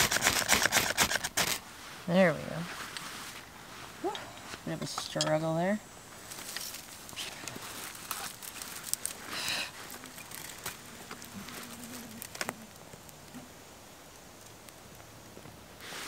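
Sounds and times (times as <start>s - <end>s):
fire crackling: 0.0s - 16.0s
dry twigs rustling and snapping: 6.2s - 15.6s.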